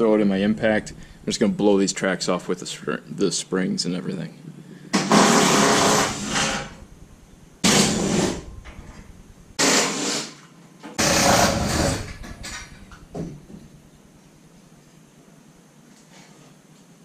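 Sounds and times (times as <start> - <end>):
impact driver hammering: 7.6 - 9.0, 11.0 - 13.6.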